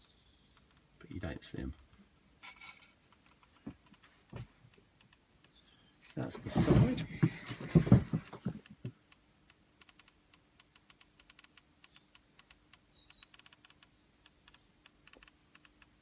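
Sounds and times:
faint small clicks: 0:00.0 - 0:00.9, 0:08.6 - 0:16.0
faint steady hum: 0:00.0 - 0:16.0
faint high chirps: 0:11.8 - 0:15.2.

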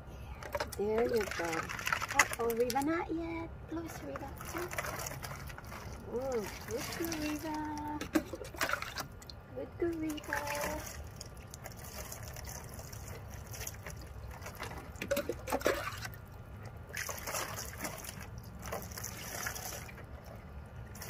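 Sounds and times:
water trickling and splashing: 0:00.4 - 0:21.0.

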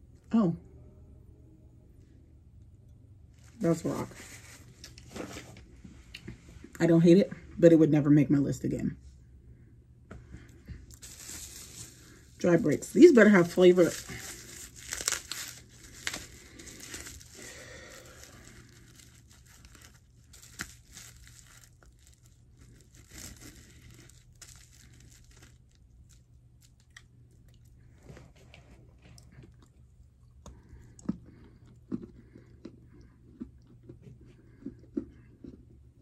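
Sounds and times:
packaging crinkling: 0:10.9 - 0:27.6
clay being bitten and chewed: 0:18.1 - 0:36.0.

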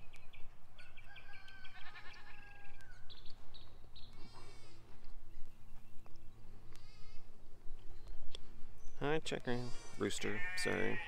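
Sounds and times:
goat bleating: 0:01.7 - 0:02.6, 0:10.0 - 0:11.0.

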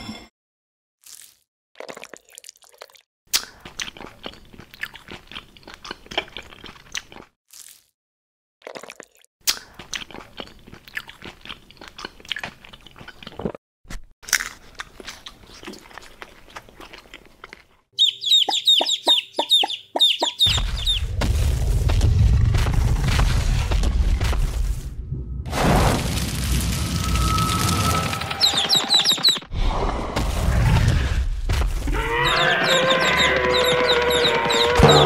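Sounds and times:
bird-like chirps: 0:18.0 - 0:21.0, 0:28.4 - 0:29.5.

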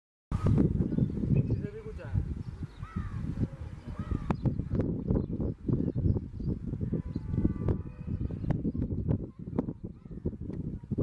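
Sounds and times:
wind buffeting microphone: 0:00.3 - 0:11.0
bird chirp: 0:00.4 - 0:09.2.

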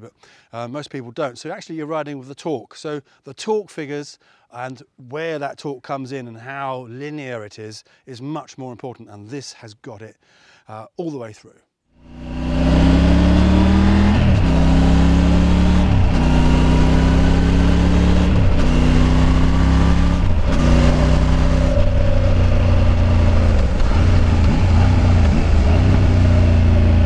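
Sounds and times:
motorcycle engine revving through gears: 0:12.0 - 0:27.0.

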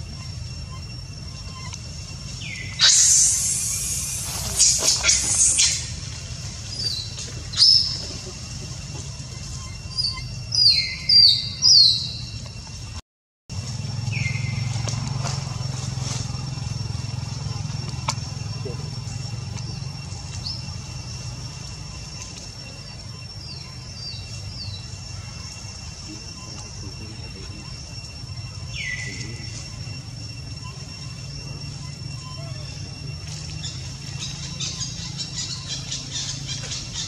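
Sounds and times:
high falling chirps: 0:00.0 - 0:12.9
high insect-like tone: 0:00.0 - 0:37.0.

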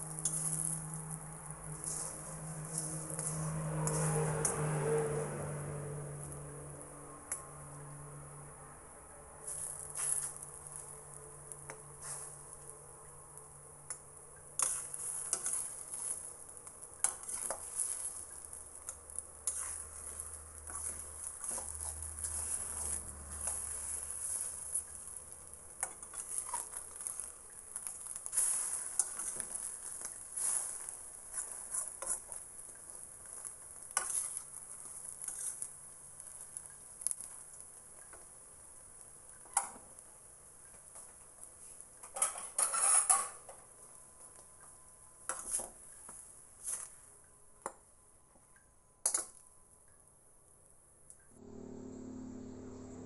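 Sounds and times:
metal spatula scraping pan: 0:00.0 - 0:06.3, 0:14.6 - 0:16.3, 0:17.0 - 0:25.1, 0:28.2 - 0:32.4, 0:33.9 - 0:35.7, 0:42.1 - 0:43.5
egg sizzling in a wok: 0:00.0 - 0:08.0, 0:09.3 - 0:43.5.

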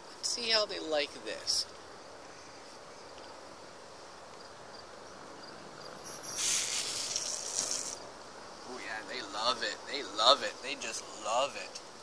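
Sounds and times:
faint steady background: 0:00.0 - 0:12.0
aerosol spray hissing: 0:06.1 - 0:08.0.

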